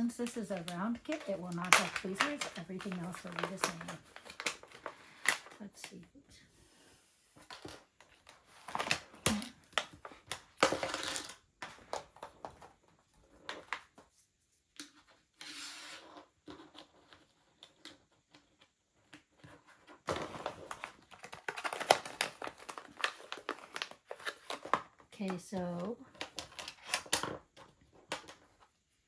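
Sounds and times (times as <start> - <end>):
plastic packaging crinkling: 0.0 - 6.0, 20.1 - 27.4
plastic pieces clicking: 20.5 - 28.6.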